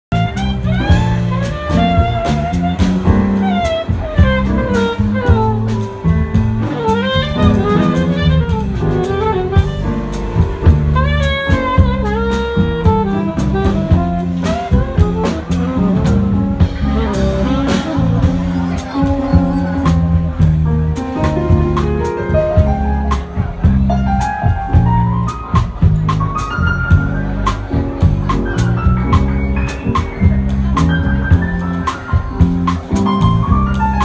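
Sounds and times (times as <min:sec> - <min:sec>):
bass line: 0:00.0 - 0:34.0
saxophone melody: 0:00.1 - 0:20.6
drums with cymbals: 0:00.1 - 0:34.0.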